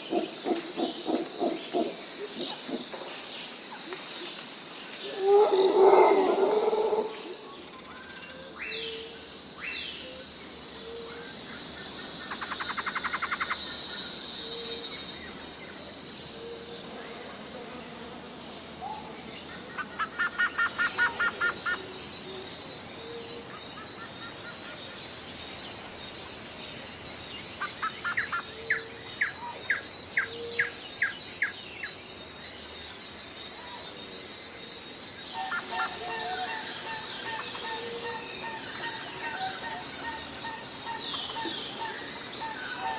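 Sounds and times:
high insect hum: 0.0s - 42.9s
birds calling: 35.2s - 42.9s.

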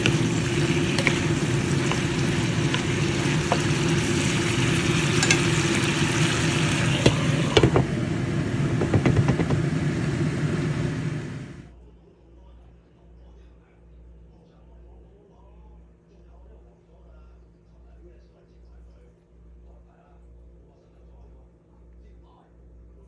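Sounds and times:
food sizzling in a pan: 0.0s - 11.7s
steady low hum: 0.0s - 23.0s
utensil knocking against pan: 5.2s - 5.6s, 8.8s - 9.6s.

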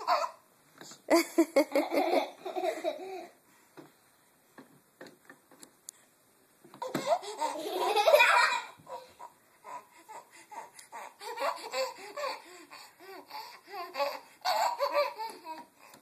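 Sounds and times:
baby giggling: 6.8s - 16.0s.

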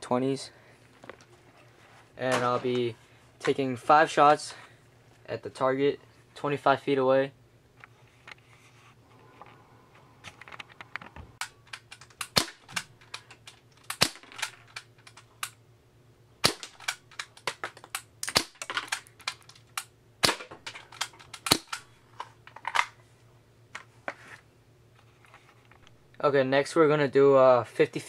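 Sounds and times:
airsoft pistol shots: 12.2s - 12.8s, 13.9s - 14.5s, 16.4s - 16.9s, 20.2s - 20.5s.

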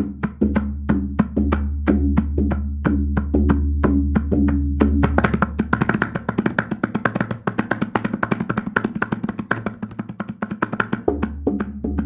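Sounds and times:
backing track with deep bass: 0.0s - 7.1s, 11.0s - 12.0s
fast tabla strokes: 0.0s - 12.0s.

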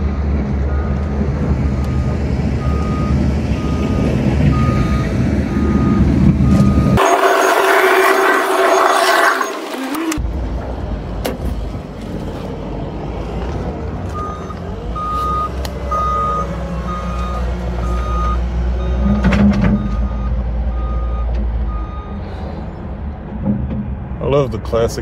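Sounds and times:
large vehicle engine running: 0.0s - 25.0s
reversing alarm beeping: 1.7s - 10.2s, 14.2s - 22.2s.

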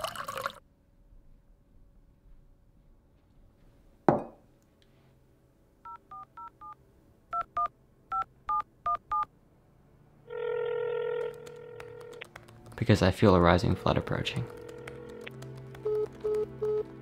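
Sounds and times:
telephone keypad tones: 14.5s - 16.9s.

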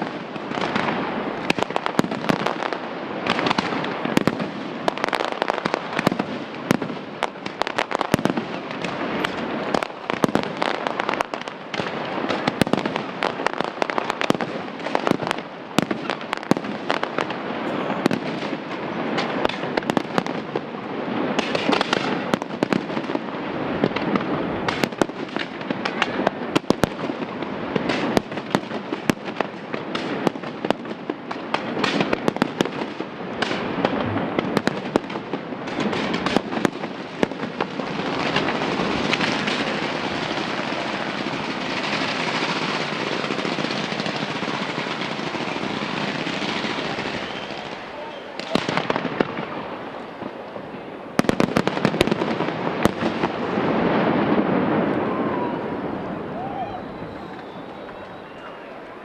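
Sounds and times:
fireworks crackle: 0.0s - 59.0s.

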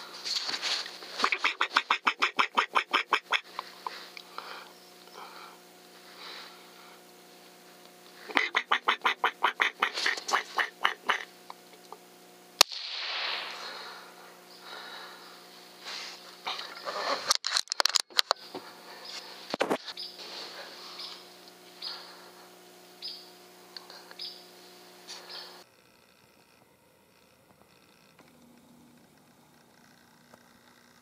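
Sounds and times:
squirrel chattering calls: 1.2s - 3.6s, 8.2s - 11.4s, 23.0s - 23.3s, 24.2s - 24.5s
suppressed rifle shot: 12.6s - 14.0s.

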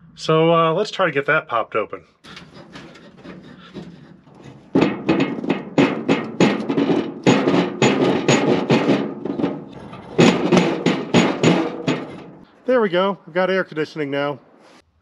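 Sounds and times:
metal vent banging and scraping: 2.3s - 12.5s.

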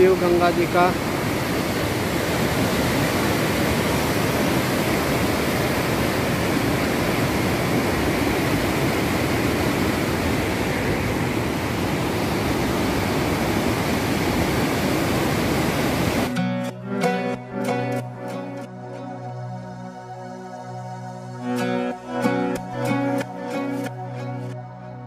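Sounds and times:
river water rushing: 0.0s - 16.4s.

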